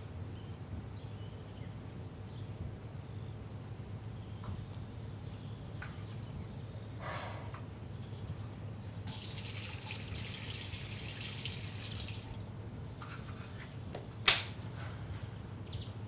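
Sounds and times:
tap running into a sink: 0:09.1 - 0:12.3.

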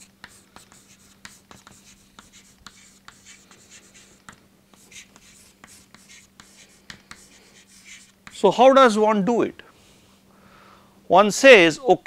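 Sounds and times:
chalk scratching on chalkboard: 0:00.0 - 0:08.4
chalk tapping on chalkboard: 0:00.0 - 0:08.4.

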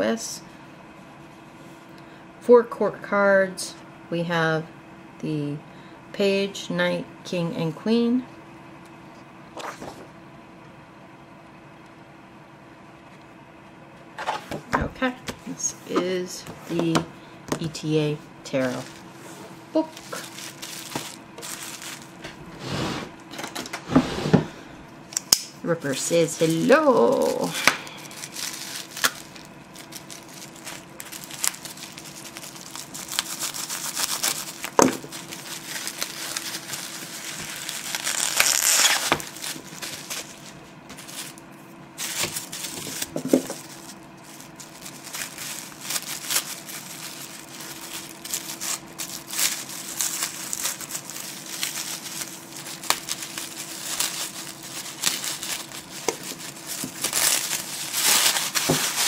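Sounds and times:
faint steady hum: 0:00.0 - 0:59.0
paper and plastic crinkling: 0:18.5 - 0:22.4, 0:25.8 - 0:41.4, 0:42.0 - 0:59.0.

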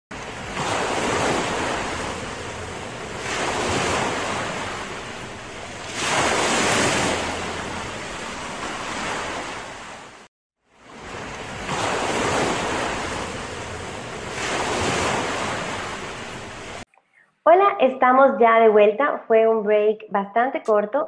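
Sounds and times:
ocean waves washing in: 0:00.1 - 0:16.8.

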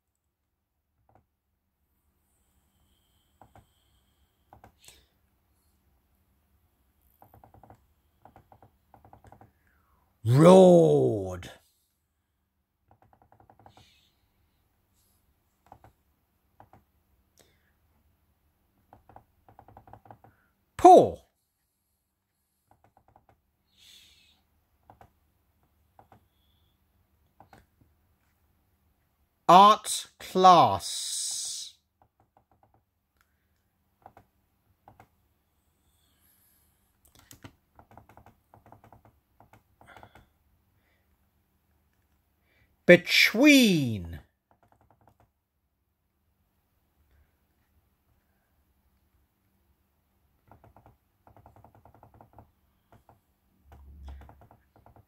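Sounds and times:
laptop keys clicking: 0:07.2 - 0:09.5, 0:37.1 - 0:40.2, 0:50.4 - 0:53.1.

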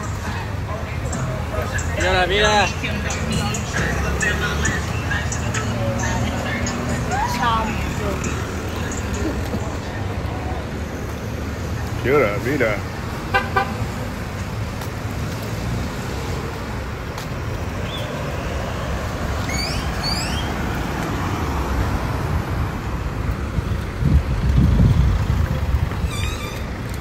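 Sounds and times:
traffic rumble: 0:00.0 - 0:27.0
vehicle passing: 0:00.0 - 0:27.0
car horn toot: 0:13.3 - 0:13.8.

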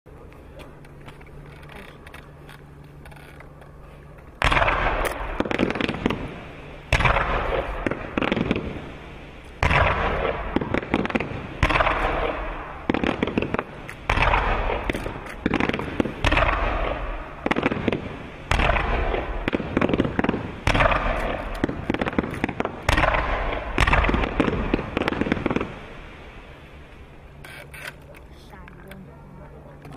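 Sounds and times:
firework bangs with crackling: 0:04.4 - 0:27.2.

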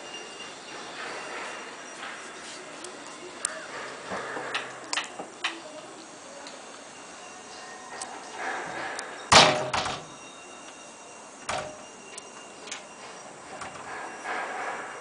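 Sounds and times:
door banging shut: 0:09.3 - 0:10.2, 0:11.5 - 0:11.8.

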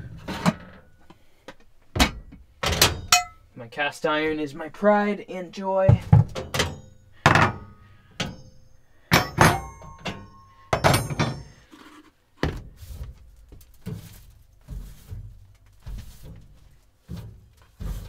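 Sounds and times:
scuffing of wiping: 0:12.7 - 0:18.0.

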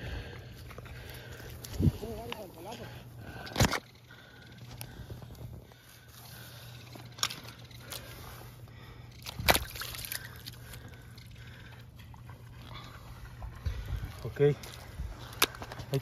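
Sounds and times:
fish slapping and splashing: 0:09.2 - 0:11.5.

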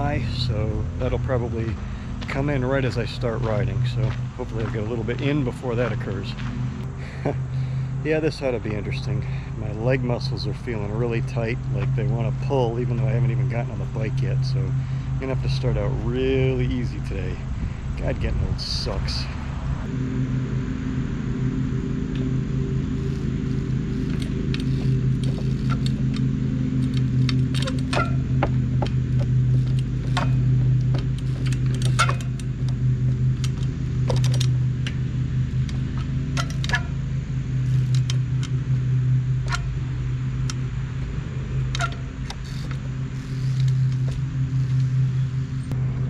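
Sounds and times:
low droning hum: 0:00.0 - 0:46.0
bike chain rattling: 0:23.0 - 0:45.7
bike wheels knocking on wood: 0:24.1 - 0:26.1, 0:27.0 - 0:32.8.

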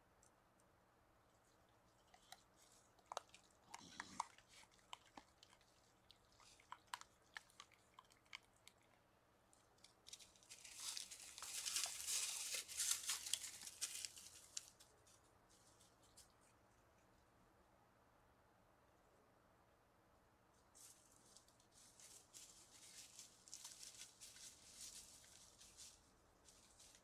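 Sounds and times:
animals crunching food: 0:01.3 - 0:17.3, 0:20.8 - 0:27.0
animal scrambling up tree: 0:10.0 - 0:14.9
rustling in dry leaves: 0:10.1 - 0:14.9, 0:20.8 - 0:27.0.

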